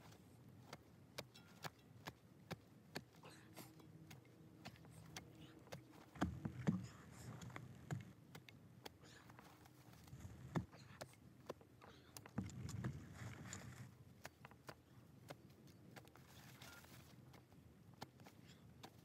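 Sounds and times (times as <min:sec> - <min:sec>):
dull thumps: 0:05.8 - 0:09.0.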